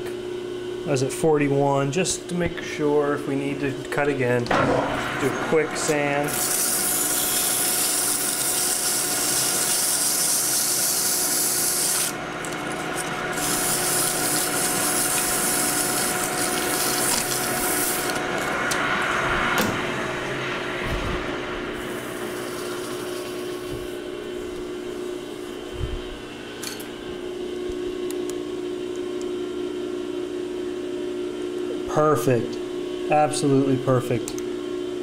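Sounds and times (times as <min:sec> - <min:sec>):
lathe whine: 0:02.2 - 0:28.0.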